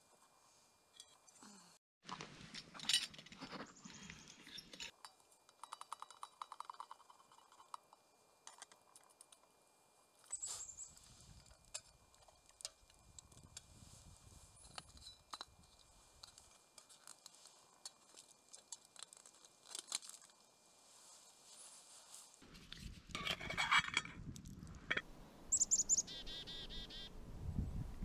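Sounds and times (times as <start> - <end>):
campfire crackling: 15.8 - 21.0.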